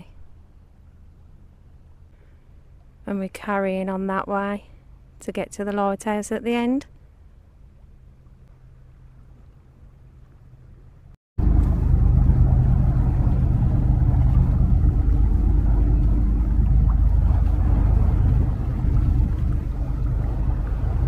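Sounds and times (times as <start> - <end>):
ferry engine rumble: 7.6 - 21.0.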